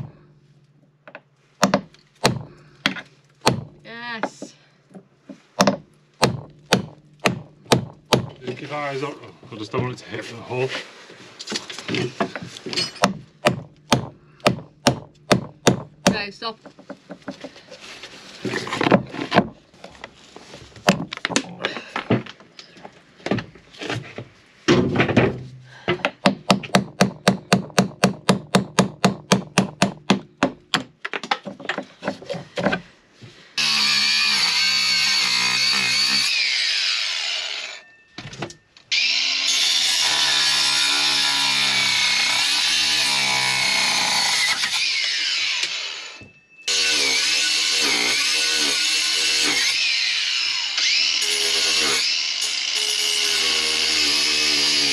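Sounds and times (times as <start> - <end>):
angle grinder on metal pipe: 33.6 - 37.9, 38.9 - 54.9.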